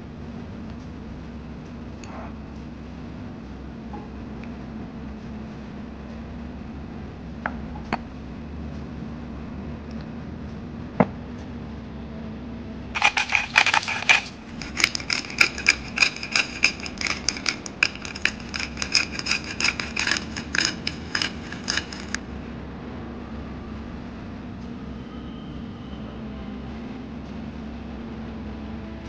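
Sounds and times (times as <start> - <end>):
pepper grinder grinding: 13.0 - 22.2.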